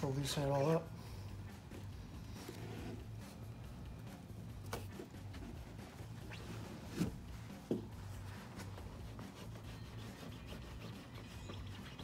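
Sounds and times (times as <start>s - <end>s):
plastic tool rubbing on plastic: 8.0s - 12.0s.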